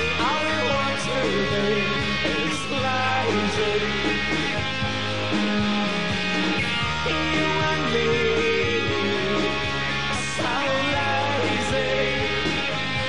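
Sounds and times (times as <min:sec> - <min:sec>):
man singing: 0:00.0 - 0:04.3, 0:06.9 - 0:12.8
bass guitar: 0:00.0 - 0:13.0
electric guitar: 0:00.0 - 0:13.0.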